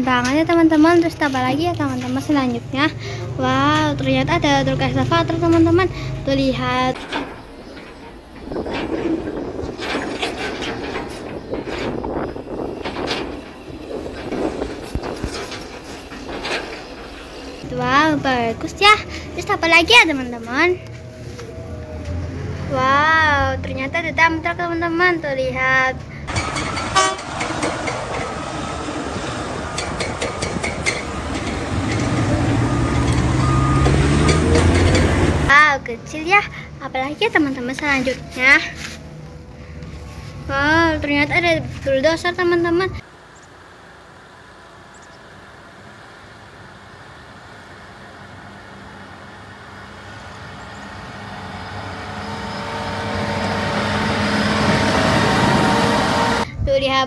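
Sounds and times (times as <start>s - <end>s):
diesel engines: 0.0s - 57.0s
short horn toot: 26.9s - 27.3s.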